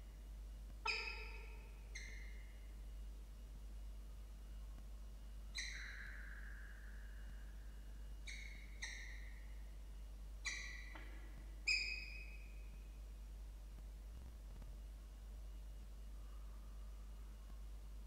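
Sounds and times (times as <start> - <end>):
falcon whining calls: 0.8 - 2.5, 5.5 - 7.4, 8.2 - 9.4, 10.4 - 12.6.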